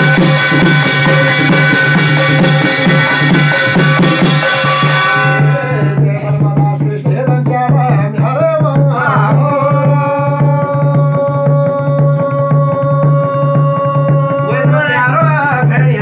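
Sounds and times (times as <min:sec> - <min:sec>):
hand drum beat: 0:00.0 - 0:16.0
man singing folk song: 0:05.8 - 0:16.0.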